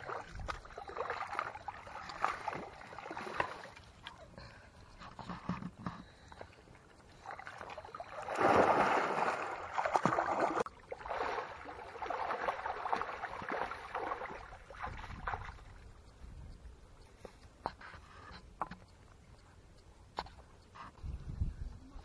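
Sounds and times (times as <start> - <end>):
water splashing and sloshing: 0.0 - 16.4.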